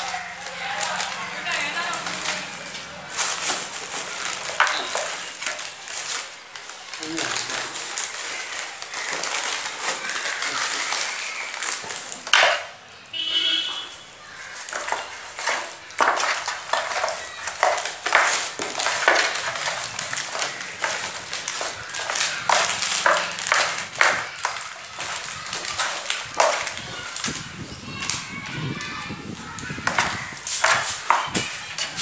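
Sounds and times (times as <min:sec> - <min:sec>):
hands squishing raw chicken: 0:07.2 - 0:12.2, 0:14.2 - 0:27.4.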